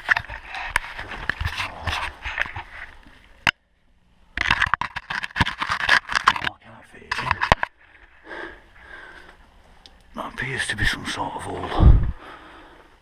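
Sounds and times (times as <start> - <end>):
camera rubbing clicks and knocks: 0.0 - 2.9, 4.4 - 7.8.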